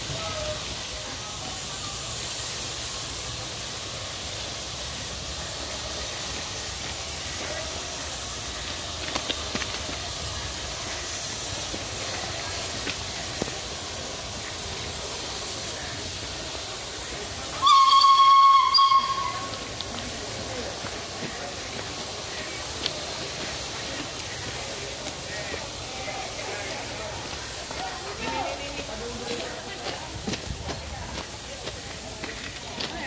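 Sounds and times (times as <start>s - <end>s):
steam locomotive hissing: 0.0s - 33.0s
steam whistle: 17.5s - 19.8s.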